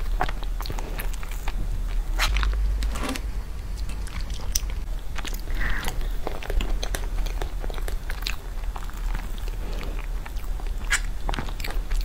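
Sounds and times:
low steady hum: 0.0 - 12.0
wet chewing mouth clicks: 3.7 - 12.0.

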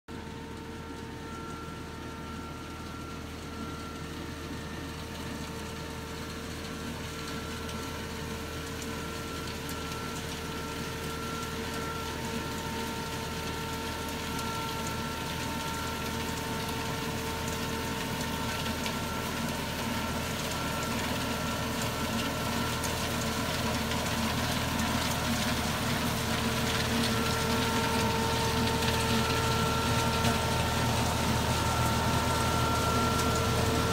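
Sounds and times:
harvester machinery whine: 0.1 - 33.9
tractor engine running: 11.8 - 33.9.

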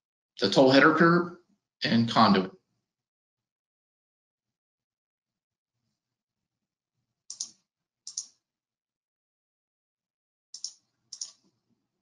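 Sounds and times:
short clicks: 7.3 - 8.4, 10.6 - 11.5.

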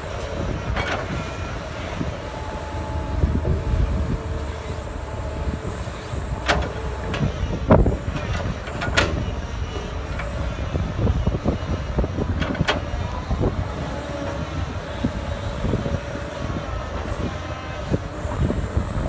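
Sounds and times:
excavator diesel engine: 0.0 - 19.0.

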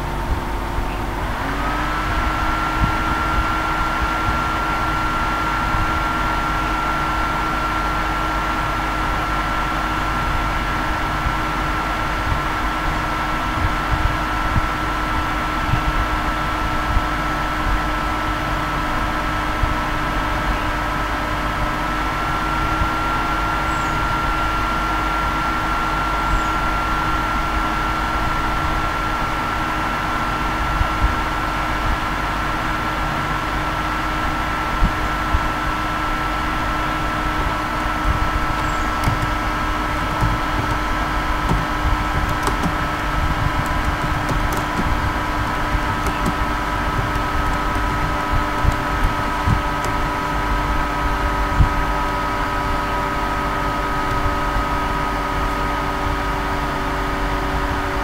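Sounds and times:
machine hum with whining tones: 0.0 - 58.0
faint keyboard clicks: 41.5 - 42.9, 45.9 - 50.0.

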